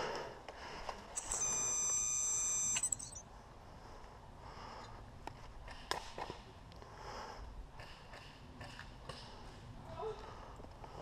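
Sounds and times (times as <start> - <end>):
electronic beep: 1.2 - 3.2.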